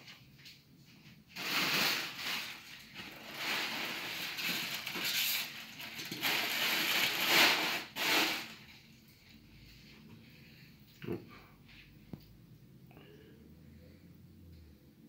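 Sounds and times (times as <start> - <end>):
rustling and crinkling: 0.0 - 11.0.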